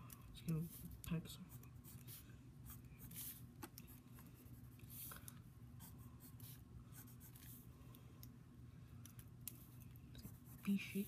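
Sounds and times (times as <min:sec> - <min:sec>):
low steady hum: 0:00.0 - 0:11.0
pencil scratching on paper: 0:00.6 - 0:03.4, 0:10.2 - 0:11.0.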